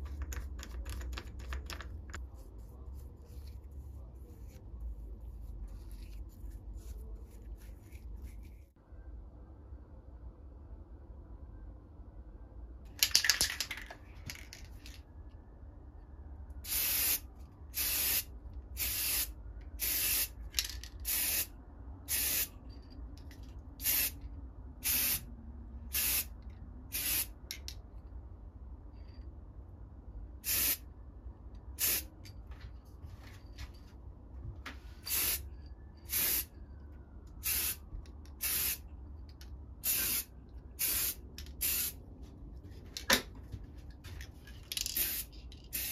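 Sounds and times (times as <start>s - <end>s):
spray can rattle: 12.9s - 14.8s, 44.7s - 45.9s.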